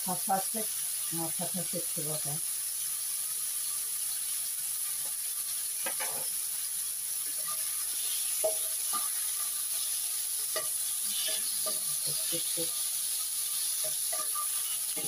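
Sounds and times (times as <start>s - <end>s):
meat sizzling in a frying pan: 0.0s - 15.0s
tongs clicking and scraping: 10.5s - 12.4s, 13.6s - 15.0s.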